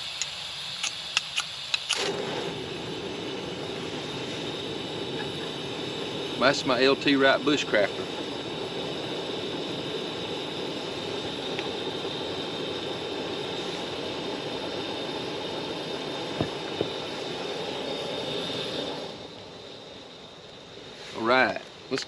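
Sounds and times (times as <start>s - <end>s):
camp stove burner roaring hiss: 0.0s - 22.0s.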